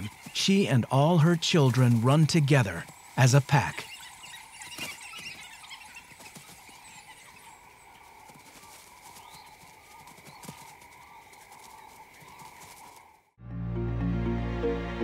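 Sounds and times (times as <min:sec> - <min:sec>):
wild dogs high calls: 0:03.8 - 0:13.0
footfalls rustling in dry grass: 0:04.6 - 0:13.2.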